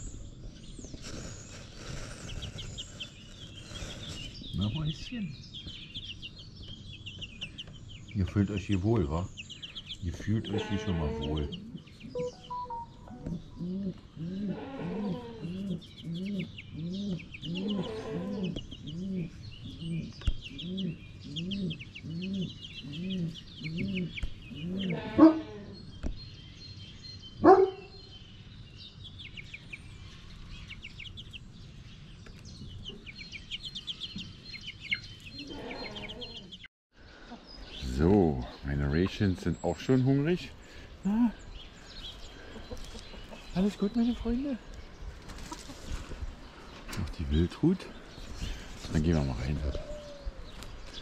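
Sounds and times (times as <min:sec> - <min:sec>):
small birds chirping: 0:00.0 - 0:51.0
chickens clucking: 0:00.8 - 0:26.2, 0:32.2 - 0:50.7
chicken squawks: 0:17.1 - 0:18.6, 0:22.9 - 0:25.8, 0:35.4 - 0:36.6.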